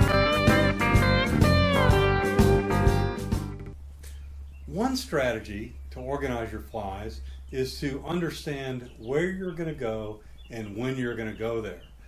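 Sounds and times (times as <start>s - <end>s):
plucked guitar music: 0.0s - 3.8s.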